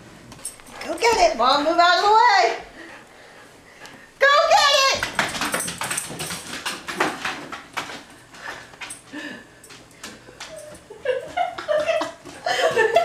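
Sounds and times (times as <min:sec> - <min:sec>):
dog claws clicking on wood floor: 0:05.0 - 0:09.1.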